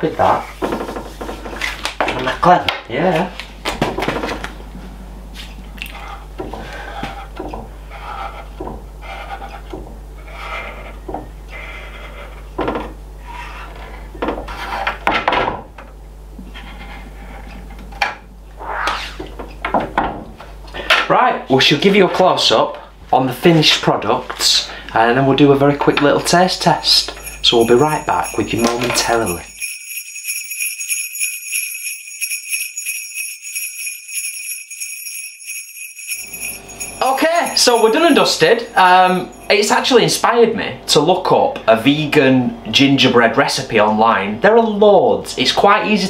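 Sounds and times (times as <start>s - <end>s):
steady low hum: 0.0s - 34.5s, 36.0s - 43.3s
sleigh bells jingling: 25.2s - 40.4s.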